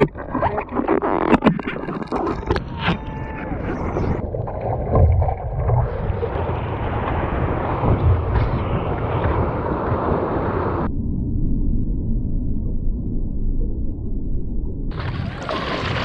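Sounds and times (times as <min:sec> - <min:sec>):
water sloshing and splashing: 0:00.0 - 0:08.7, 0:14.9 - 0:16.0
deep rumble: 0:00.0 - 0:16.0
wind buffeting microphone: 0:02.8 - 0:10.9.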